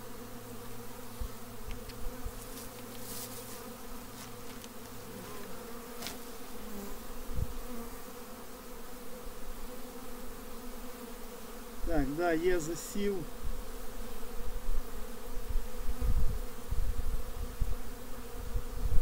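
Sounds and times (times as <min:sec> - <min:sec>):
bees buzzing: 0:00.0 - 0:19.0
hive frames clicking and thumping: 0:01.6 - 0:06.5.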